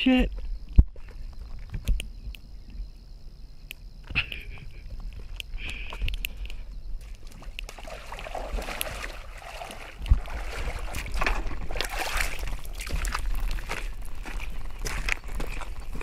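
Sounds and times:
water sloshing and splashing: 7.0s - 16.0s.

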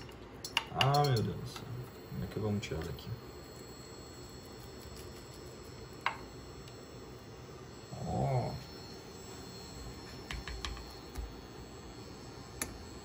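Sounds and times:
spatula tapping a pan: 10.3s - 10.8s.

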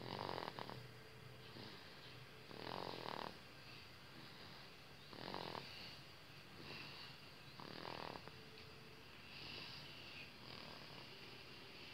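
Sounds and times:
baby snoring: 0.0s - 0.9s, 1.5s - 3.4s, 4.1s - 6.0s, 6.6s - 8.3s, 10.4s - 11.1s.

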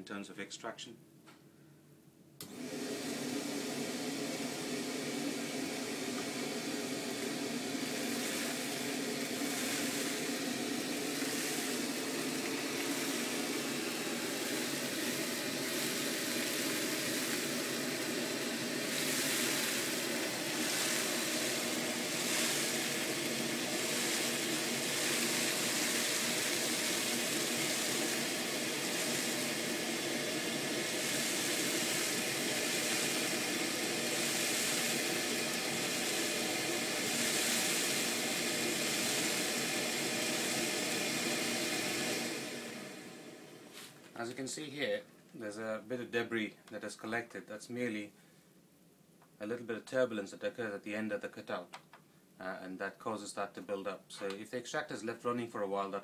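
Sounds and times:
dust extractor motor drone: 2.4s - 43.7s
nozzle hissing sucking dust: 2.4s - 44.4s.

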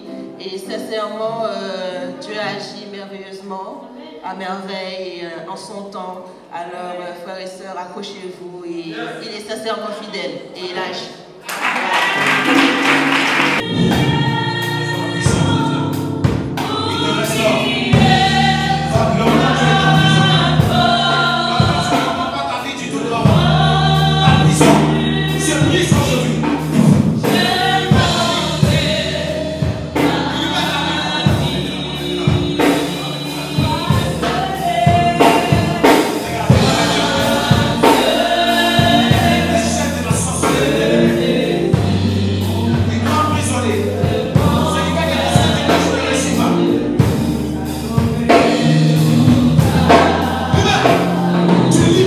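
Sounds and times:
choir singing gospel: 8.6s - 52.0s
steady drum beat: 12.1s - 52.0s.

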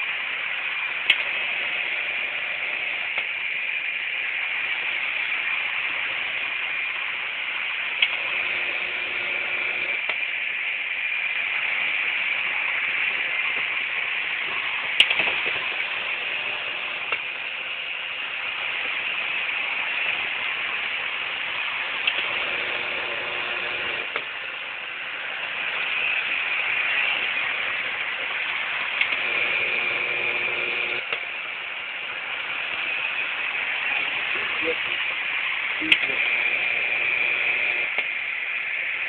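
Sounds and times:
model train running on track: 0.0s - 39.0s
sharp click: 15.0s - 15.6s.

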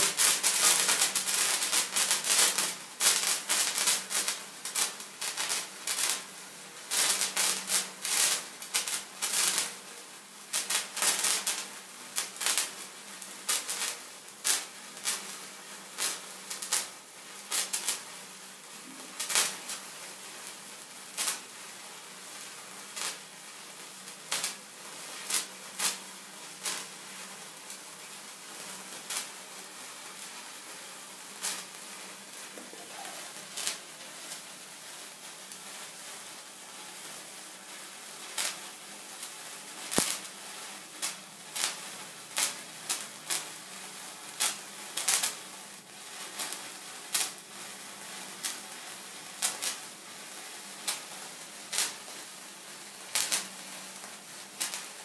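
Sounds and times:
sparkler fizzing and crackling: 0.0s - 55.0s.

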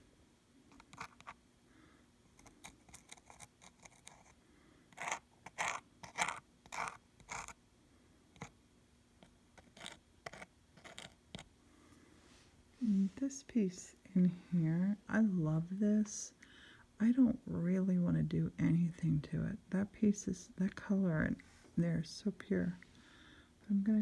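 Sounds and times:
plastic nozzle scratching canvas: 5.0s - 7.6s, 9.6s - 11.4s.

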